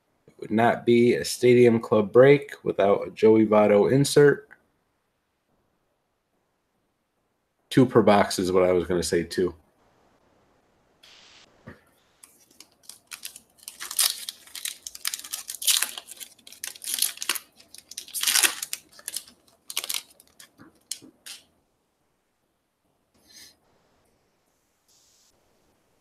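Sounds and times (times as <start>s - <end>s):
foil wrapper tearing and crinkling: 12.2s - 21.4s.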